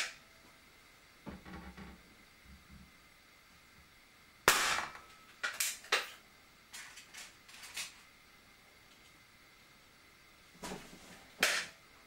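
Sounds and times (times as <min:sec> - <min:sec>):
air pistol shot: 0:04.5 - 0:05.0.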